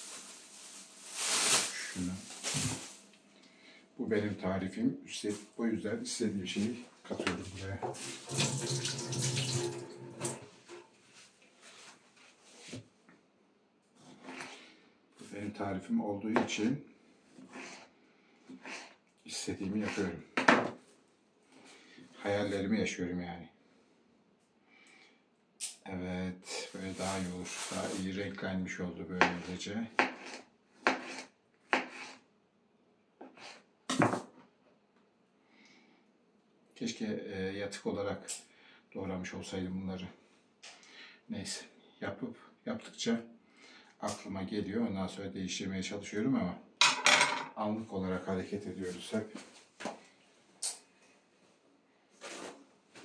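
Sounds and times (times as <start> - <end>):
kitchen tap running: 7.9 - 10.8.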